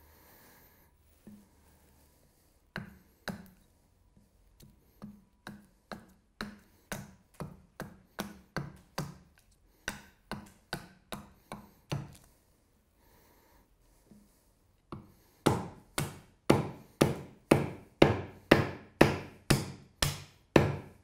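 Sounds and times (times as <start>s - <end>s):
hatchet chopping wood: 2.8s - 3.6s, 5.0s - 12.2s, 14.9s - 21.0s.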